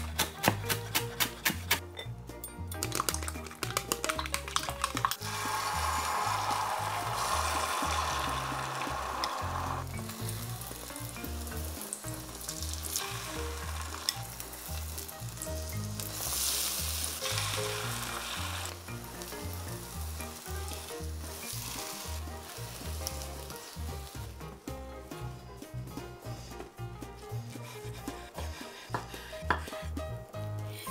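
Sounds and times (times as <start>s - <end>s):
egg sizzling in a pan: 2.9s - 24.5s.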